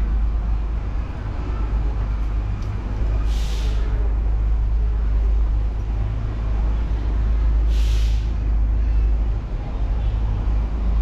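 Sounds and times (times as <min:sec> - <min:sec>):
street traffic rumble: 0:00.0 - 0:11.0
short burst of hiss: 0:03.3 - 0:03.8, 0:07.7 - 0:08.3.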